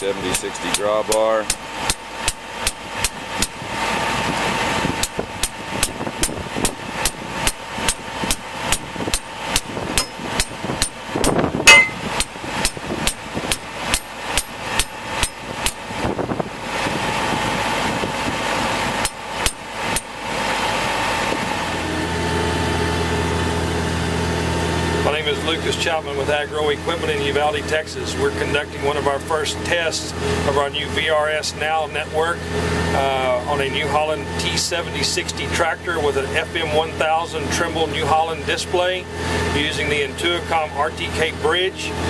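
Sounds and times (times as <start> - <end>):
tractor engine running: 0.0 - 42.0
hammer striking metal stake: 6.6 - 11.0, 11.6 - 15.8.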